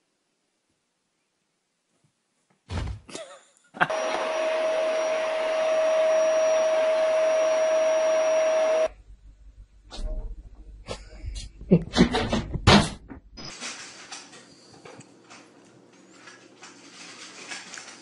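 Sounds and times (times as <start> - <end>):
small electric motor whining: 3.9 - 8.9.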